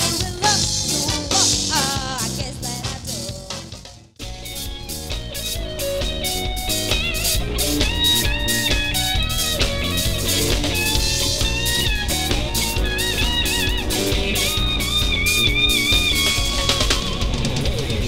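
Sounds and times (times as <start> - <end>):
bass guitar: 0.0 - 18.0
drum kit: 0.0 - 18.0
electric guitar: 4.2 - 18.0.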